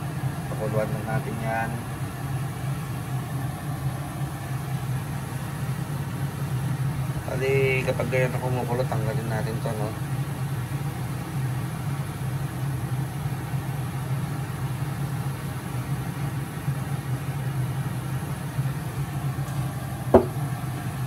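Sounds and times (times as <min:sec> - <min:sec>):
pot of water boiling: 0:00.0 - 0:08.5, 0:09.2 - 0:21.0
steady low hum: 0:00.0 - 0:21.0
sharp knock: 0:20.2 - 0:20.4.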